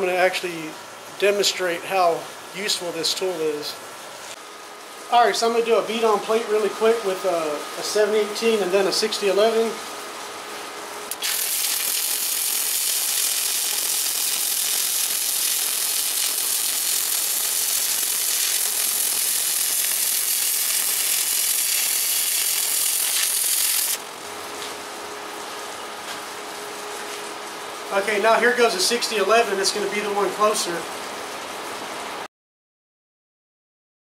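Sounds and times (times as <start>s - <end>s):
steady hum: 0.0s - 31.2s
welding arc crackling: 11.1s - 24.7s.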